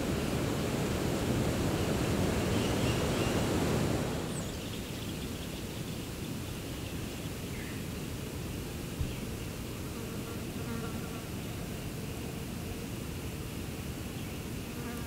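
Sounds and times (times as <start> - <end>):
low outdoor rushing noise: 0.0 - 9.8.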